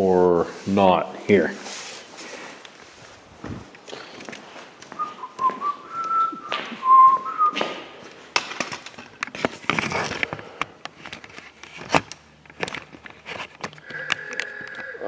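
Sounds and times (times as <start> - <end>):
man whistling: 5.0 - 7.6
clicks knocks and rustles: 8.3 - 14.9.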